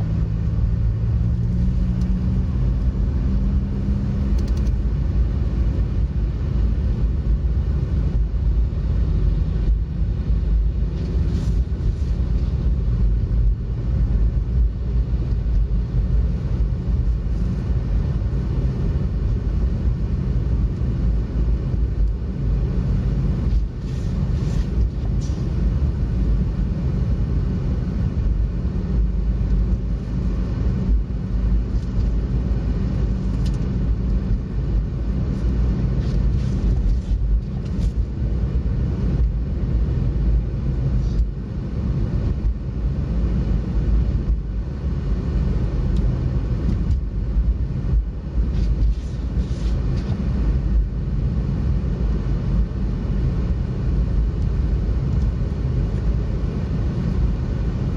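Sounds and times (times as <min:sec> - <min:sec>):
car road and engine rumble: 0:00.0 - 0:57.9.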